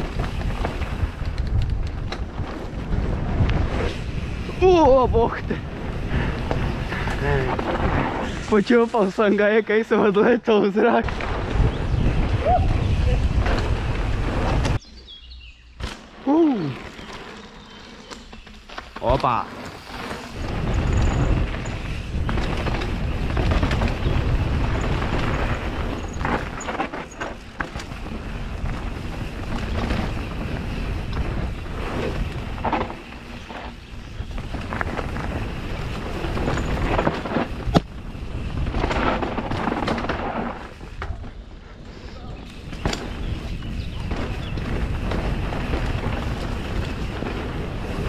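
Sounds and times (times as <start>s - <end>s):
wind buffeting microphone: 0.0s - 8.5s, 11.0s - 14.8s, 20.3s - 26.8s, 27.6s - 39.8s, 42.2s - 48.0s
bike tyres and frame rattling: 0.0s - 48.0s.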